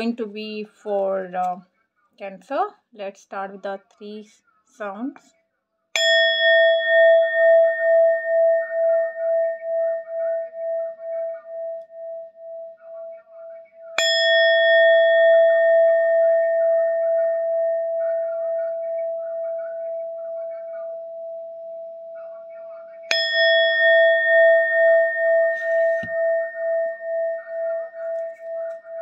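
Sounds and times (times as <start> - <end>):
singing bowl ringing: 6.0 - 29.0.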